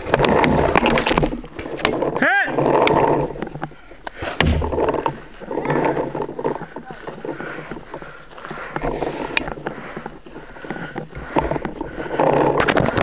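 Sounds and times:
rustling through dry grass: 0:00.0 - 0:13.0
hard breathing: 0:03.0 - 0:13.0.

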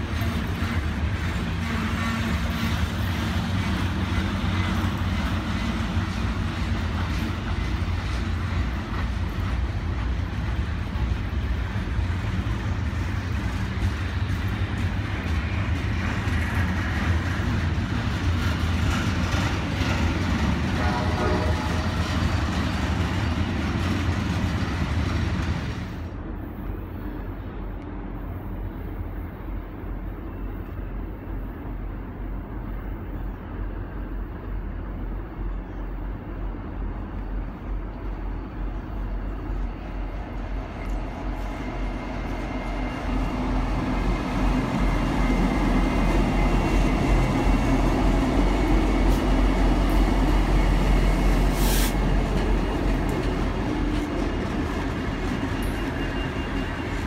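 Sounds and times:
train wheel squeal: 0:00.0 - 0:26.0, 0:38.2 - 0:57.0
distant diesel locomotive rumble: 0:00.0 - 0:57.0
freight train wheels rumbling and clattering: 0:00.0 - 0:57.0.

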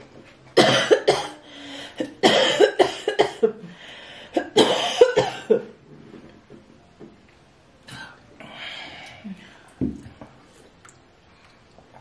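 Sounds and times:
woman coughing: 0:00.6 - 0:01.4, 0:02.0 - 0:03.6, 0:04.4 - 0:05.7.

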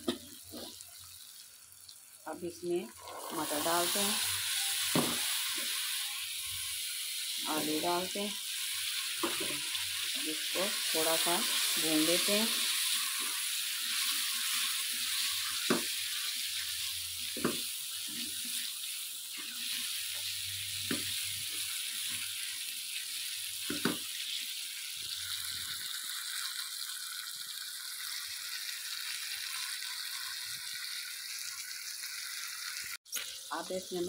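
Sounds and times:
vegetables sizzling in hot oil: 0:00.0 - 0:34.0.

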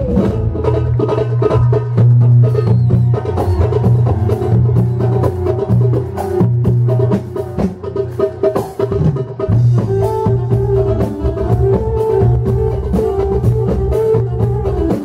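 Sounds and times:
hand drum beating: 0:00.0 - 0:15.0
live band playing: 0:00.0 - 0:15.0.

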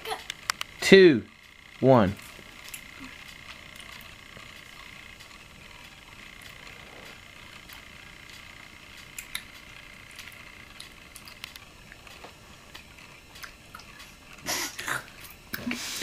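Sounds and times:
wet mouth clicks and smacks: 0:09.2 - 0:09.5.

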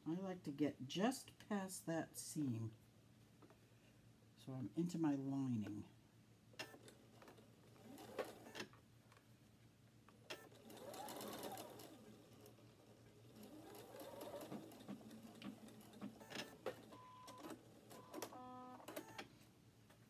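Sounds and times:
sewing machine stitching: 0:06.6 - 0:08.7, 0:10.3 - 0:19.2
sewing machine clicks: 0:10.3 - 0:12.6, 0:13.3 - 0:19.3.

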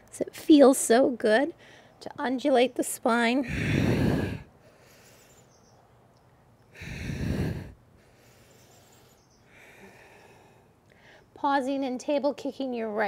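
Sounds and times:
woman breathing: 0:01.6 - 0:02.0, 0:03.4 - 0:05.5, 0:06.7 - 0:11.3.

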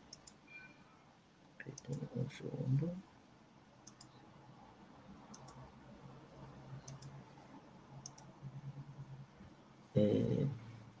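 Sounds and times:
faint low hum: 0:00.0 - 0:11.0
computer mouse clicks: 0:00.1 - 0:00.4, 0:03.8 - 0:04.2, 0:05.3 - 0:05.6, 0:06.8 - 0:07.2, 0:08.0 - 0:08.3.

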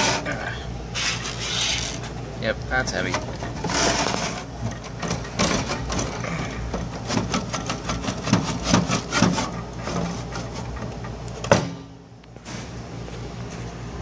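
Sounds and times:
knocking and clattering of hard parts: 0:02.9 - 0:11.9.

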